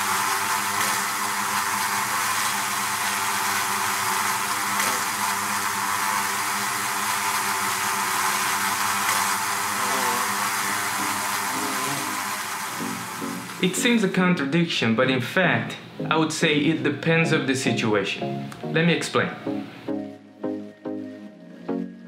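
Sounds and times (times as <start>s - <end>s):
honey bees buzzing: 0.0s - 14.1s.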